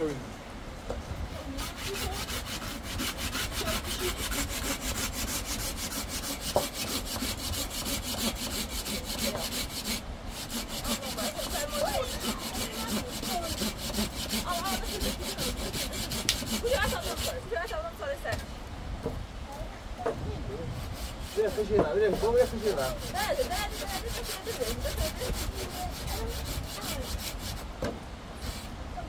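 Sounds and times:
hand saw cutting wood: 1.5s - 17.4s, 20.8s - 27.7s, 28.4s - 28.7s.

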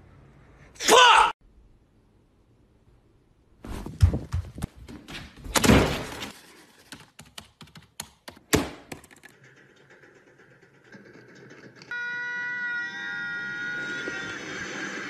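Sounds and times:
irregular clicks and knocks: 6.8s - 11.9s.

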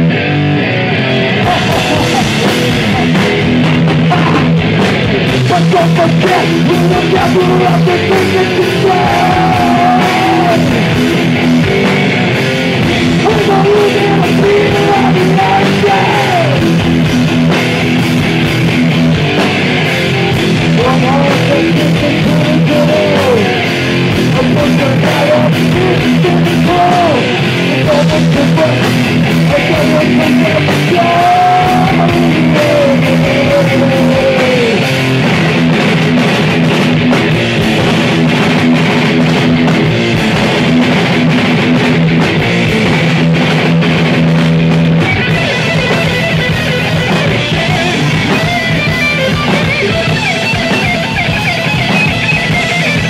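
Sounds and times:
thrash metal band playing: 0.0s - 53.0s
shouted vocals: 1.3s - 4.5s, 5.5s - 11.0s, 13.2s - 16.8s, 20.2s - 35.0s.

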